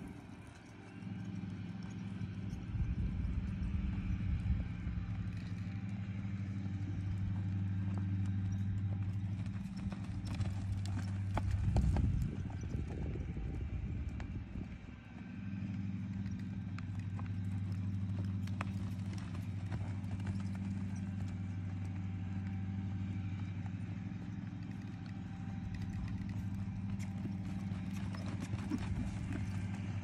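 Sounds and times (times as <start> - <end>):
horse hooves on soft dirt: 0.0 - 30.0
steady low hum: 0.0 - 30.0
horse skidding to a stop: 25.9 - 30.0.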